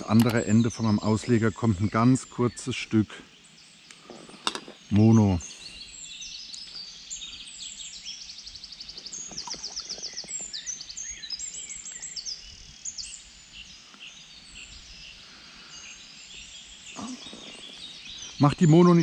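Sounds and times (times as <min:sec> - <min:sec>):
songbirds singing: 0:00.0 - 0:19.0.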